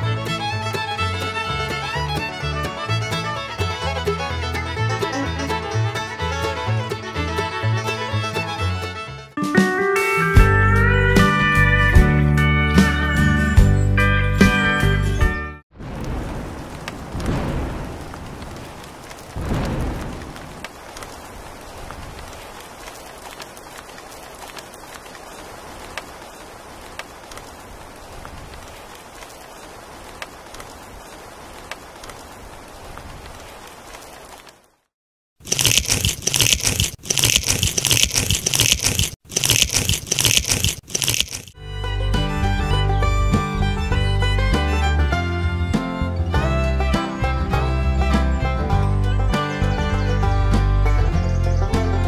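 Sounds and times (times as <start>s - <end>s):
thunder rolling: 15.7s - 22.5s
dense crackling and crunching: 15.8s - 34.7s, 35.4s - 41.6s
steady rain hiss: 15.8s - 34.9s.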